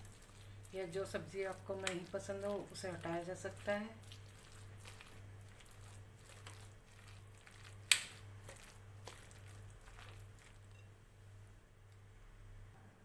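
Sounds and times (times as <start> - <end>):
spoon stirring thick batter: 0.0 - 10.9.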